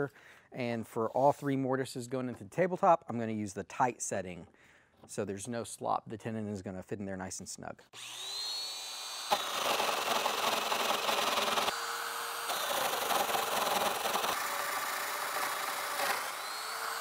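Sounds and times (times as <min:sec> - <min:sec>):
rough wood cutting noise: 0:07.9 - 0:17.0
power tool motor whine: 0:08.0 - 0:17.0.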